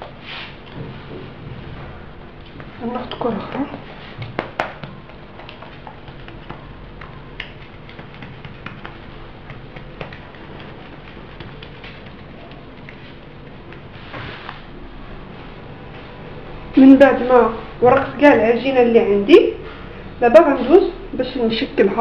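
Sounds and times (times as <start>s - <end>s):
fingers patting dough: 2.4s - 14.6s.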